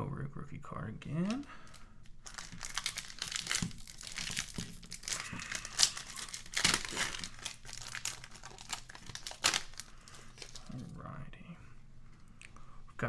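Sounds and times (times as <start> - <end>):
wrapper crinkling and tearing: 1.3 - 10.8.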